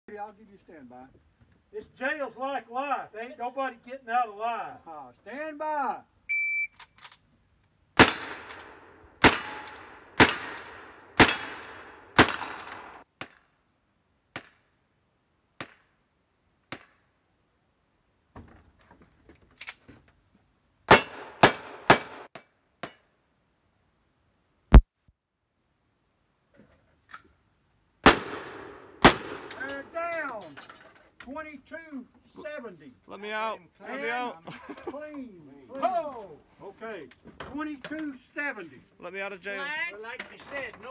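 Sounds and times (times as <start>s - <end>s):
shot timer beep: 6.3s - 6.8s
gunshots with ringing tail: 8.0s - 13.0s, 20.9s - 22.3s, 28.0s - 29.6s.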